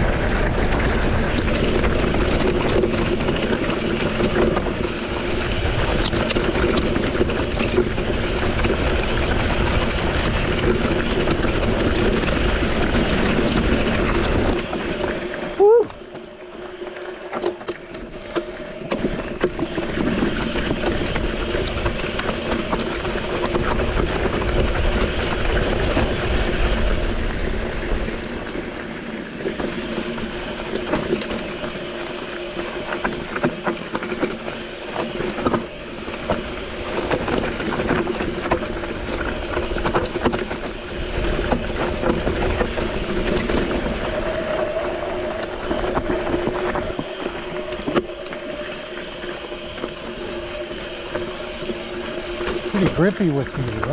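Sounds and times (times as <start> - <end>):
bike tyres grinding over stones: 0.0 - 53.9.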